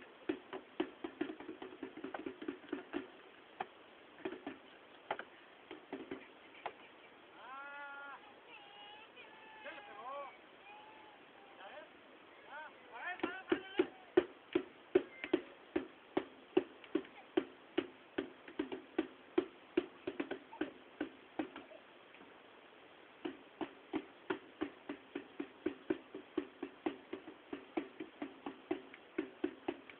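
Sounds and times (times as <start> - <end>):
rhythmic percussion beats: 0.0 - 6.8, 13.2 - 21.8, 23.2 - 29.9.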